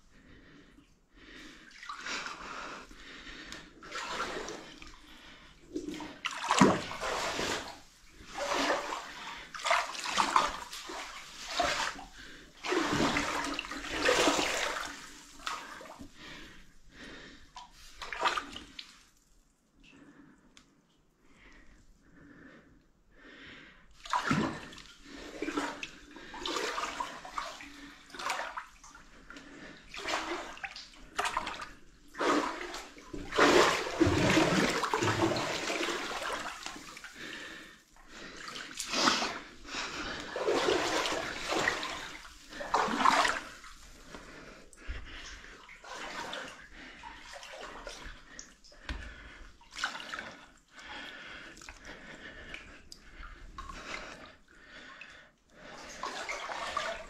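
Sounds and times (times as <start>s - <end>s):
shallow water sloshing: 3.9s - 16.5s, 24.1s - 50.4s.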